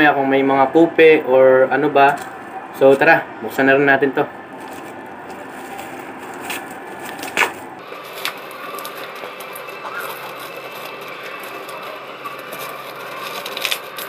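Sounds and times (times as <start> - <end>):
packaging rustling and crackling: 4.5 - 14.0.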